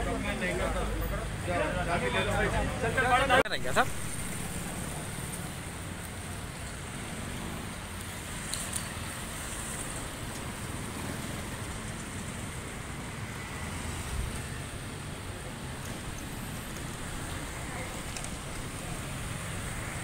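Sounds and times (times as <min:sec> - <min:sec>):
street traffic rumble: 0:00.0 - 0:20.0.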